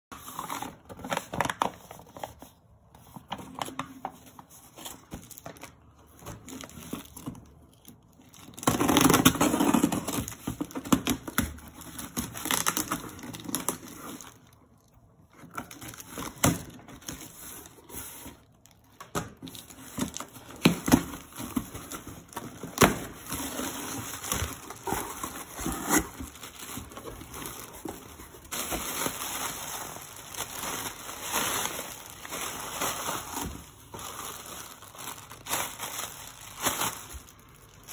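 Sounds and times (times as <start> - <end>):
packing tape cut and pulled: 6.5 - 14.4, 19.4 - 29.2
plastic air pillows crinkling: 16.7 - 37.9.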